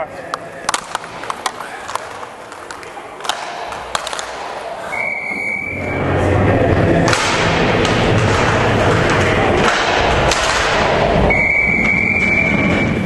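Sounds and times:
hockey sticks and puck knocking: 0.3s - 4.9s, 7.0s - 13.0s
skates rumbling on ice: 0.7s - 4.9s, 6.9s - 13.0s
high steady whistle: 4.9s - 6.2s, 11.2s - 13.0s.

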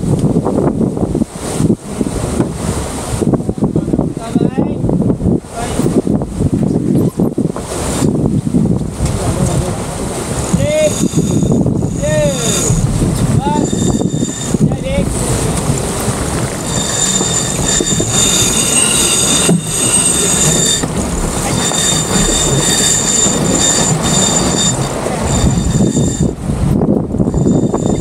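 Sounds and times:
water rushing along hull: 0.0s - 28.0s
wind buffeting microphone: 0.0s - 28.0s
high squeal: 10.5s - 15.2s, 16.4s - 26.4s, 27.2s - 28.0s.

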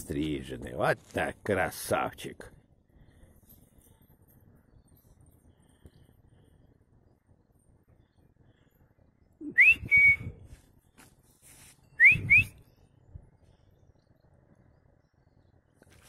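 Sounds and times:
person whistling for a dog: 9.4s - 10.5s, 12.0s - 12.6s.

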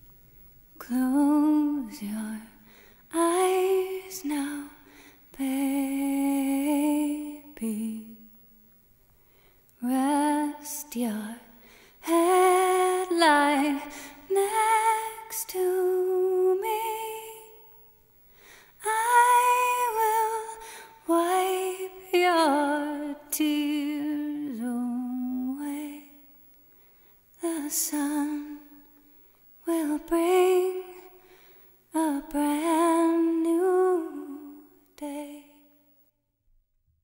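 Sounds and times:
woman singing lullaby: 0.8s - 8.3s, 9.8s - 17.8s, 18.8s - 26.2s, 27.4s - 28.8s, 29.6s - 31.1s, 31.9s - 35.6s.

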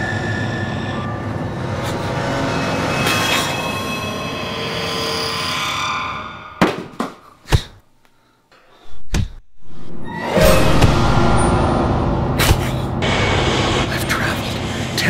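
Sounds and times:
screeching wash with shrill tones: 0.0s - 6.6s, 10.0s - 15.0s
sharp hits: 10.2s - 15.0s.

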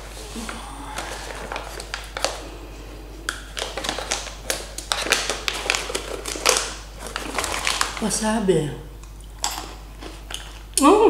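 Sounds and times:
plastic snack bag crinkling: 0.4s - 2.6s, 3.3s - 8.2s.

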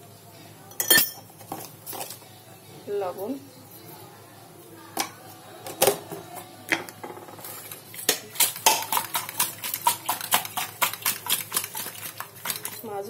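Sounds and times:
fish scraping in steel bowl: 7.4s - 12.8s.

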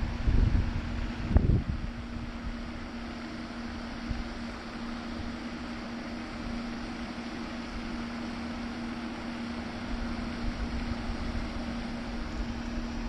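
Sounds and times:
wind rumbling on microphone: 0.0s - 2.8s
low hum: 0.0s - 13.0s
steady outdoor hiss: 0.0s - 13.0s.

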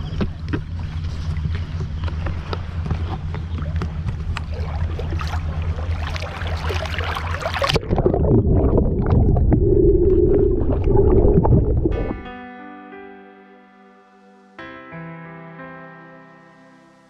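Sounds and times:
muffled underwater rumble: 0.0s - 12.3s
steady low rumble: 0.0s - 12.3s
water splashing: 0.0s - 12.3s.

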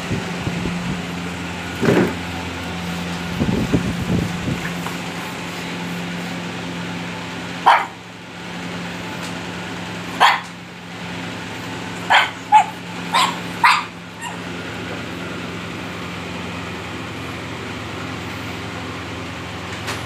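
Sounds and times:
steady low hum: 0.0s - 20.0s
puppy yapping: 7.6s - 8.0s, 10.2s - 10.6s, 12.0s - 14.5s.

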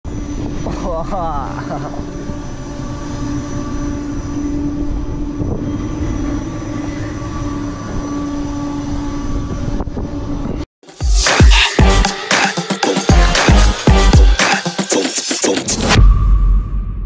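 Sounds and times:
ride machinery droning: 0.1s - 10.7s.

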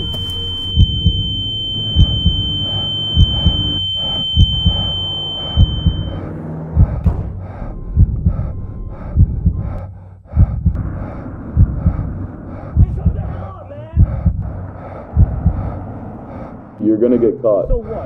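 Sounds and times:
steady high tone: 0.0s - 7.0s
heartbeat thumps: 0.0s - 18.0s
low drone: 0.0s - 18.0s.

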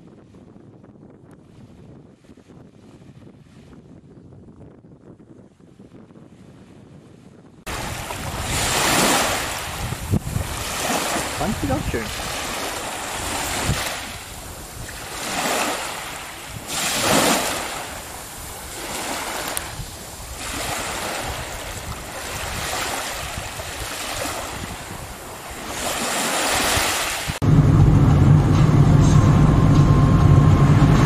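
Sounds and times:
surf washing against rocks: 7.7s - 27.4s
vehicle engine and road rumble: 27.4s - 31.0s.

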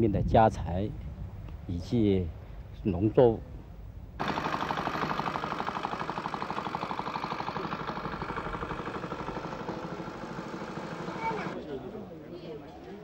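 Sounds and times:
engine chugging steadily: 4.2s - 11.6s.

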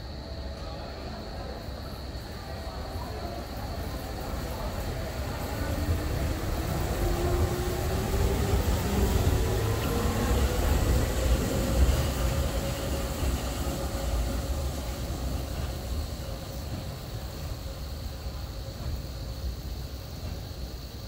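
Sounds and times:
funicular car rumbling on rails: 0.0s - 21.0s
funicular car whine: 4.8s - 17.5s.

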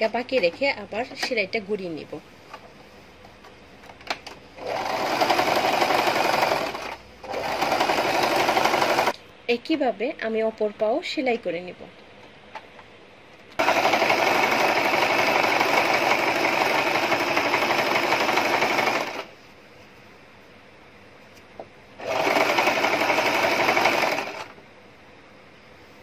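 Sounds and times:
sewing machine stitching: 4.6s - 9.1s, 13.6s - 19.3s, 22.0s - 24.5s.

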